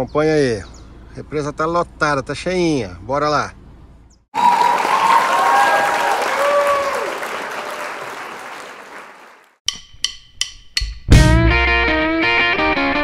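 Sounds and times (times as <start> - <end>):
crowd cheering and applauding: 4.3 - 9.6.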